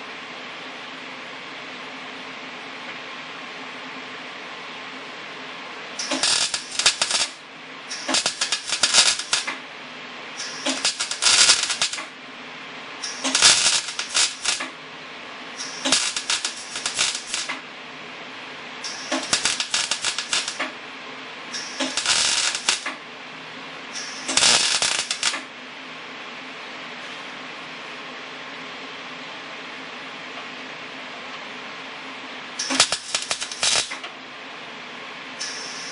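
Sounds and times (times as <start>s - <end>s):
steady welder hum: 0.0s - 35.9s
welder arc crackling: 6.0s - 9.7s, 10.3s - 12.2s, 13.0s - 14.8s, 15.5s - 17.7s, 18.8s - 23.0s, 24.0s - 25.5s, 32.6s - 34.1s.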